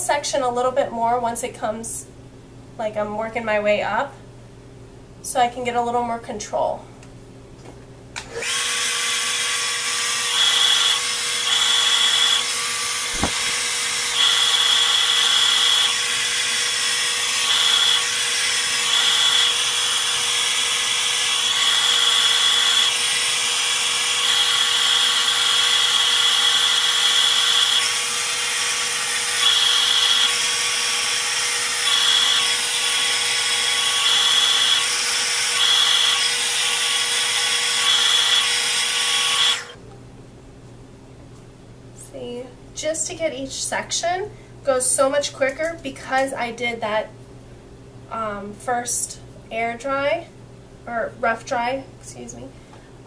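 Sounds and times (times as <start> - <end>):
hair dryer running: 8.2 - 39.8.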